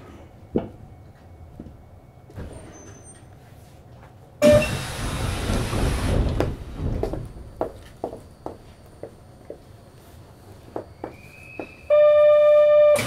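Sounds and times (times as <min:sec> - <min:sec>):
train doors rush of air: 0:04.4 - 0:08.0.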